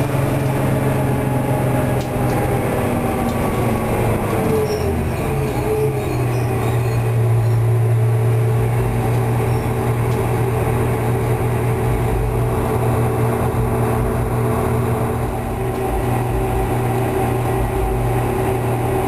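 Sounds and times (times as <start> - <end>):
bus diesel engine droning: 0.0 - 19.0.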